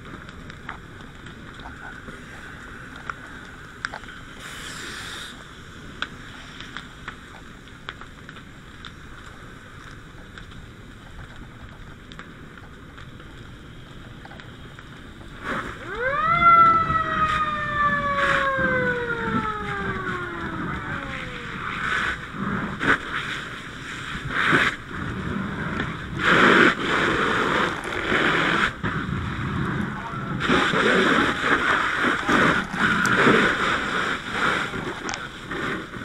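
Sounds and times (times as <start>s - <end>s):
fire hose stream hissing: 1.6s - 7.7s, 13.2s - 36.0s
mechanical siren wailing: 15.8s - 21.9s.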